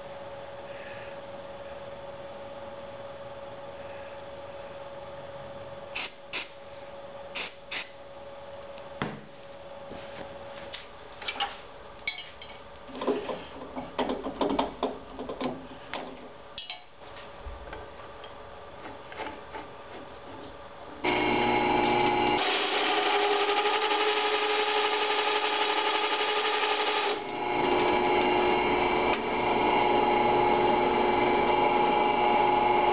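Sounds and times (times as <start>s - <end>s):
drill press motor running: 21.0s - 32.9s.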